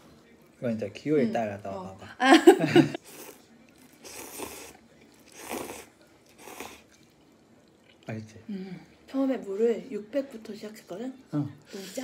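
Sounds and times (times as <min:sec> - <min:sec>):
noodles being slurped: 0:03.0 - 0:08.1.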